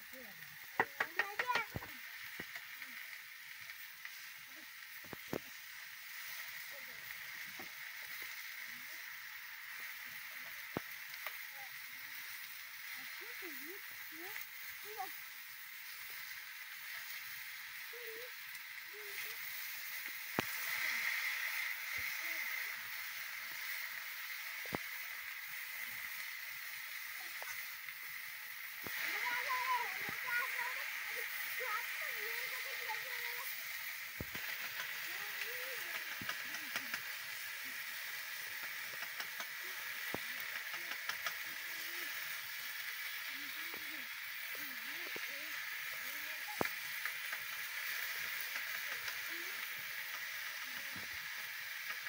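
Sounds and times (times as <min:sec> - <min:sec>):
vegetables sizzling in a pan: 0:00.0 - 0:52.0
sticks clicking while stirring: 0:00.8 - 0:02.7, 0:34.2 - 0:37.5, 0:38.5 - 0:41.6.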